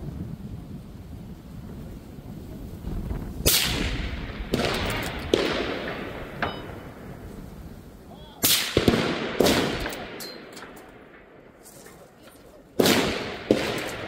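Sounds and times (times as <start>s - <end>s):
rifle shots echoing: 3.4s - 7.2s, 8.4s - 11.6s, 12.8s - 14.0s.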